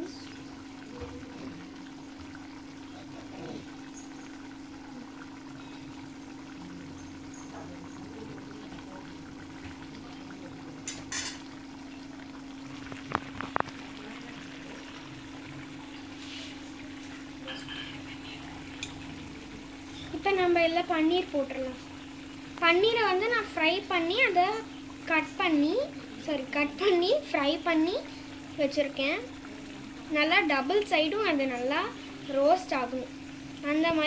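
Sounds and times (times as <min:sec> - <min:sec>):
gravy simmering and bubbling: 0:00.0 - 0:34.0
steady low hum: 0:00.0 - 0:34.0.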